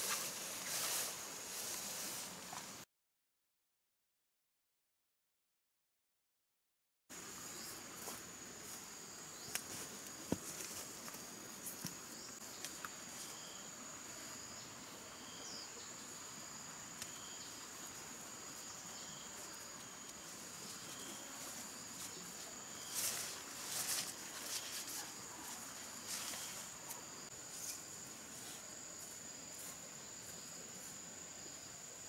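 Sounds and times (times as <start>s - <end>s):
rustle: 0.0s - 2.8s, 7.1s - 32.0s
insect chirp: 7.1s - 32.0s.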